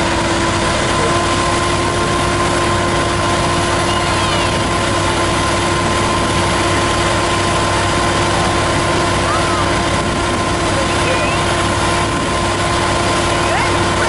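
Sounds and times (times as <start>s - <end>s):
engine and pump whining: 0.0s - 14.0s.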